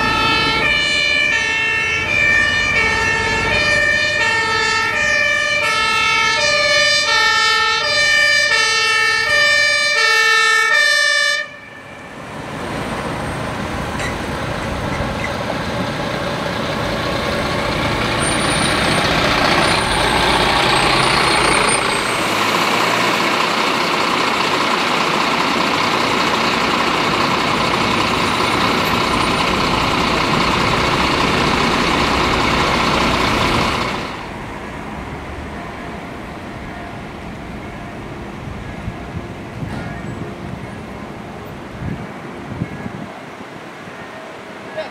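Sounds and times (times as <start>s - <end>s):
two-tone siren: 0.0s - 12.4s, 35.4s - 40.9s
fire truck engine passing: 0.0s - 44.7s
heavy road traffic: 0.0s - 44.9s.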